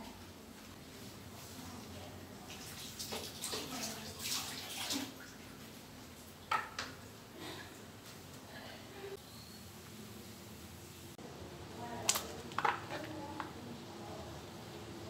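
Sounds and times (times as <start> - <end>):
water running from a tap: 2.4 - 5.6.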